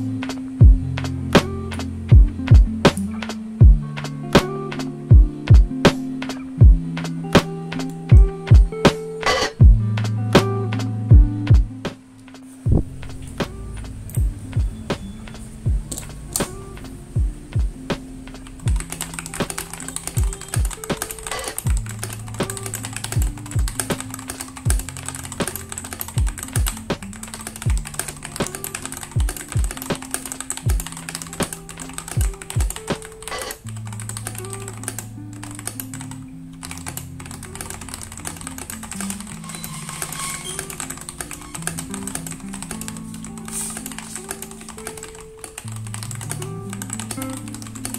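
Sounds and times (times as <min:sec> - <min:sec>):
lofi background music: 0:00.0 - 0:47.9
mechanical keyboard typing: 0:18.4 - 0:36.0, 0:36.7 - 0:47.9.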